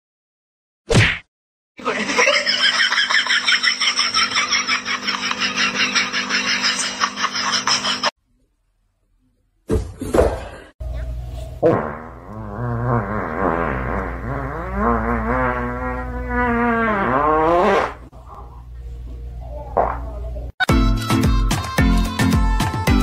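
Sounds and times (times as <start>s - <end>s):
person laughing hard: 1.8s - 8.1s.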